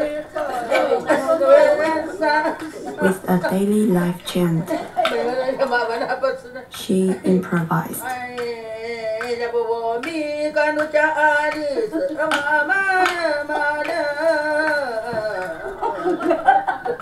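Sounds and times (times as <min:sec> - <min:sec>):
woman singing a chant: 0:03.0 - 0:04.8, 0:06.7 - 0:15.5.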